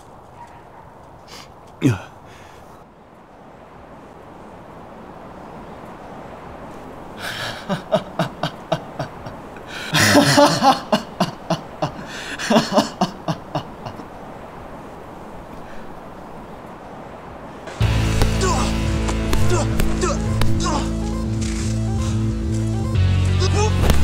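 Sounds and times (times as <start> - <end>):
man laughing: 7.2 - 14.2.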